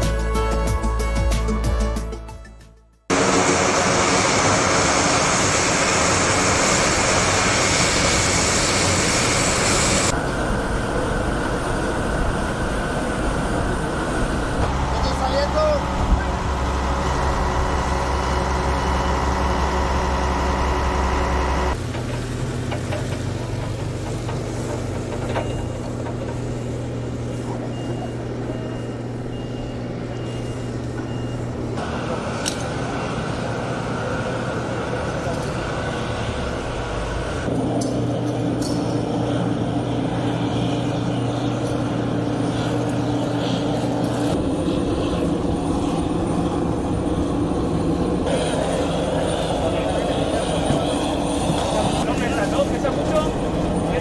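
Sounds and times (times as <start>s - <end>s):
turboprop aircraft engines running: 3.1s - 54.0s
forklift reversing alarm beeping: 25.3s - 25.8s, 27.6s - 33.6s.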